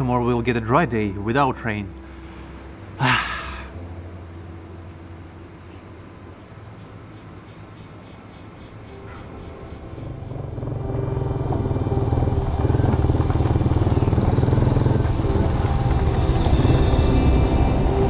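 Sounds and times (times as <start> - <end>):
motorcycle engine running: 9.7 - 18.0.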